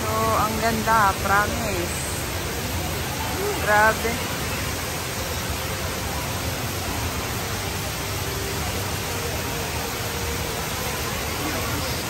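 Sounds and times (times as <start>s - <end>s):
water pouring into pool: 1.0s - 12.0s.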